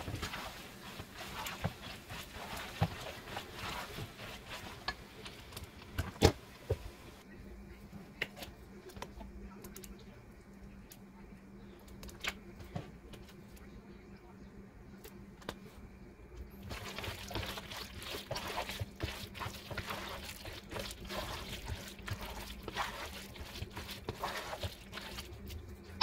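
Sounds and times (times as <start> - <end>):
spatula scraping a pot: 0.0 - 5.6, 16.7 - 25.3
faint low hum: 0.0 - 26.0.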